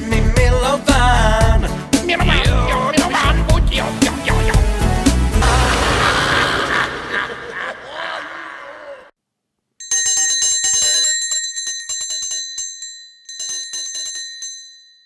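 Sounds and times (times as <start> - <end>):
small bell ringing rapidly: 9.8 - 15.0.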